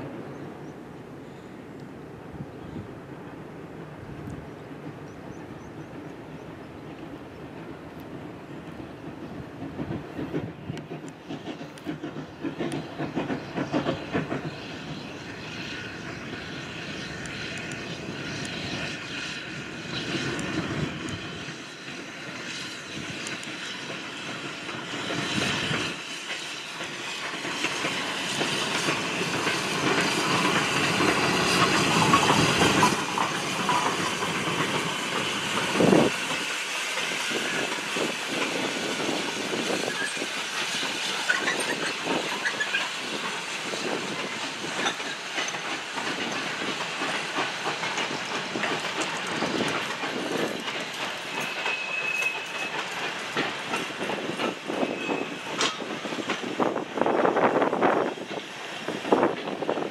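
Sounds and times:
steam locomotive working: 0:00.0 - 0:59.9.

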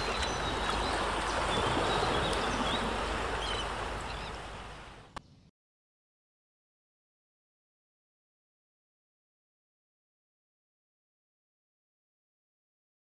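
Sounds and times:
rushing water: 0:00.0 - 0:05.2.

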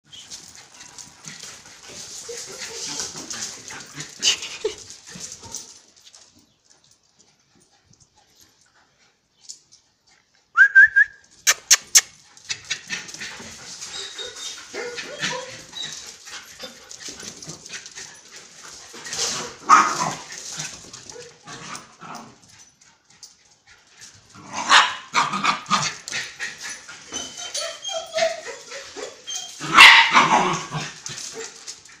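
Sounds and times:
dogs barking and yipping: 0:00.1 - 0:10.3, 0:11.2 - 0:32.0
dog whining: 0:13.8 - 0:16.1, 0:27.0 - 0:29.8.

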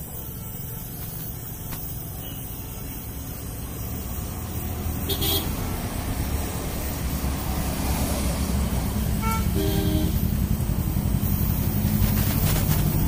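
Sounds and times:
gas welding torch hissing: 0:00.0 - 0:13.0
road traffic rumble: 0:00.0 - 0:13.0
vehicle horn tooting: 0:05.1 - 0:05.6, 0:09.2 - 0:10.4.

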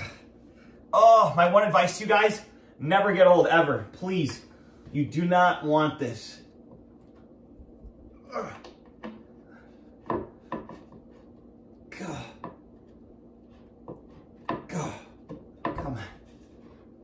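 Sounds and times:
person grunting: 0:08.2 - 0:08.7, 0:11.9 - 0:12.4, 0:14.7 - 0:15.2
desk panels knocking and scraping: 0:10.0 - 0:11.2.

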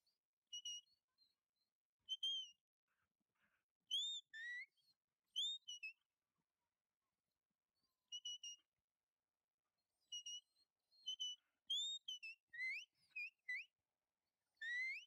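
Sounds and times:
shepherd's whistle: 0:00.5 - 0:00.9, 0:02.1 - 0:02.6, 0:03.9 - 0:06.0, 0:08.1 - 0:08.6, 0:10.1 - 0:13.7, 0:14.6 - 0:15.0.

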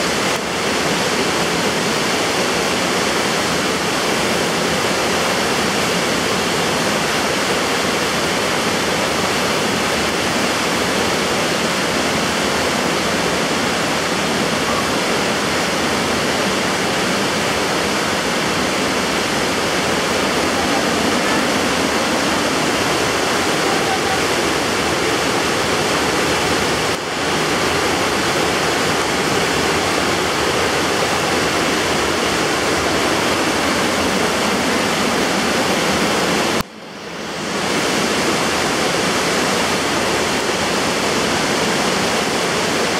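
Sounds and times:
floodwater rushing: 0:00.0 - 0:42.9.

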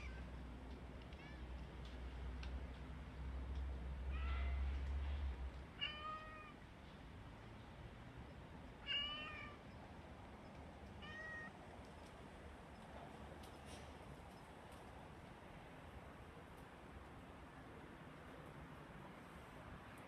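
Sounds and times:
cat meowing: 0:05.8 - 0:06.6, 0:08.8 - 0:09.6, 0:11.0 - 0:11.5.

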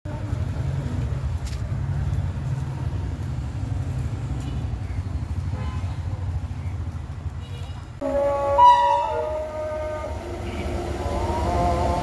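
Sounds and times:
train rumbling on track: 0:08.0 - 0:12.0.

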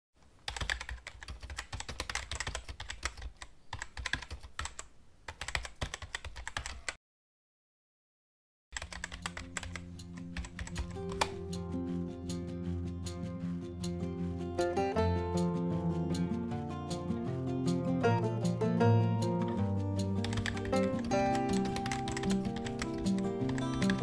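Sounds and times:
rapid keyboard typing: 0:00.4 - 0:07.0, 0:08.8 - 0:11.5, 0:20.0 - 0:24.0
music with sustained low notes: 0:08.9 - 0:24.0.

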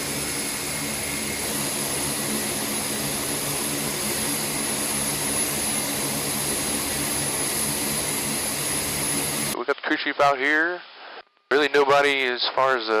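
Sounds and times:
high-pitched turbine whine: 0:00.0 - 0:09.6
propeller drone: 0:00.0 - 0:09.6.

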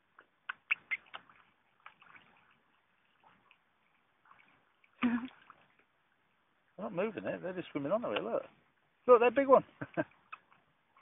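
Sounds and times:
fish splashing and gulping: 0:00.0 - 0:06.4.

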